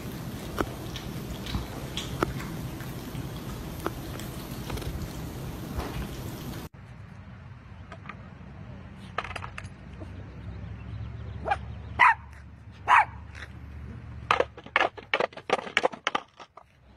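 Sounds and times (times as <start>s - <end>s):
skateboard wheels rolling on concrete: 0.0s - 6.7s
dog barking: 11.4s - 13.2s
skateboard knocks and clatters: 14.2s - 16.8s.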